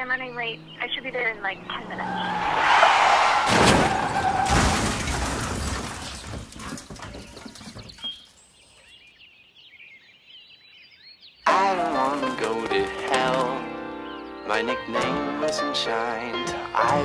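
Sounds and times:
tyre screech: 0:02.0 - 0:04.6
loud crash impact: 0:02.5 - 0:06.5
glass shattering: 0:03.5 - 0:07.0.

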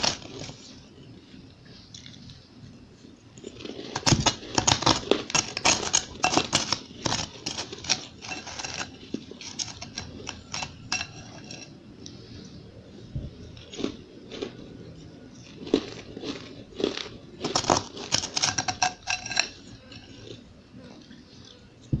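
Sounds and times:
spoon scraping crushed ice: 0:00.0 - 0:00.8, 0:03.4 - 0:11.7, 0:15.4 - 0:20.4.

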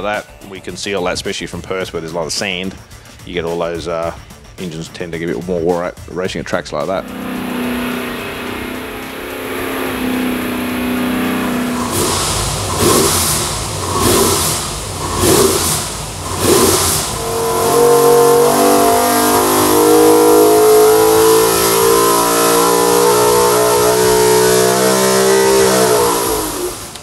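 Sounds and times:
race engine revving: 0:06.8 - 0:27.0.

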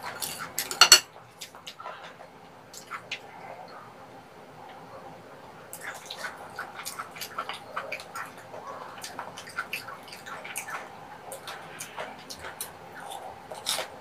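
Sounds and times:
wet chewing mouth clicks: 0:09.0 - 0:13.9.

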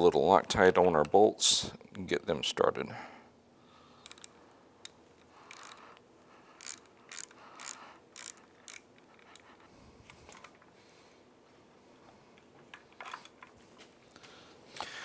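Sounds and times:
hand ratchet clicking: 0:04.0 - 0:09.6.

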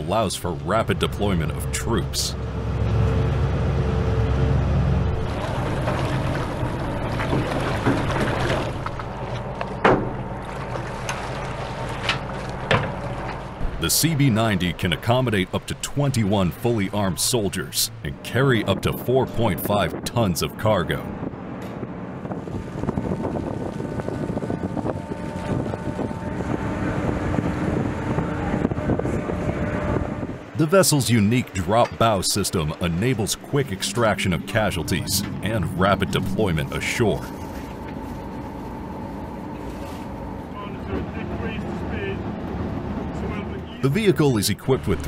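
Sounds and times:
boat engines idling: 0:00.0 - 0:45.0
water noise: 0:00.0 - 0:45.0
wind buffeting microphone: 0:18.1 - 0:30.6.

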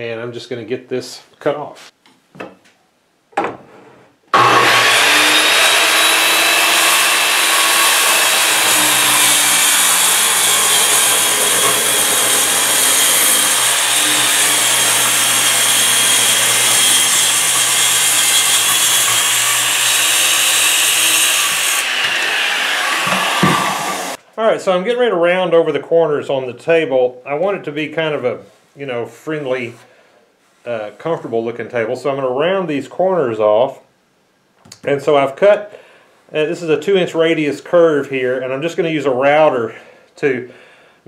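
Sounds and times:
circular saw cutting wood: 0:04.3 - 0:24.2.

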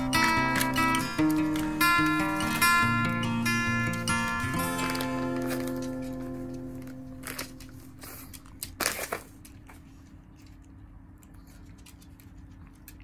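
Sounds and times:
plastic packet crinkling: 0:00.0 - 0:10.1.

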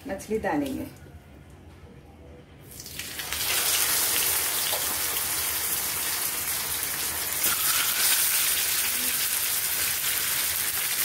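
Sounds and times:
fish sizzling in hot oil: 0:02.8 - 0:11.0.

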